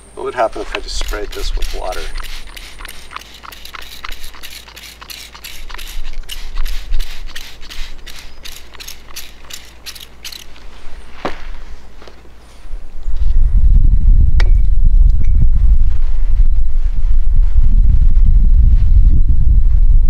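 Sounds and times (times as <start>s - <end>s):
spray bottle squirting water: 0.6s - 10.6s.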